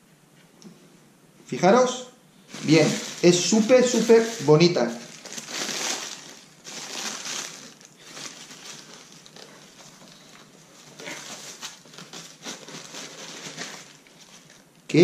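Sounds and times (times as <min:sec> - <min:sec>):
tissue paper rustling: 0:02.4 - 0:14.6.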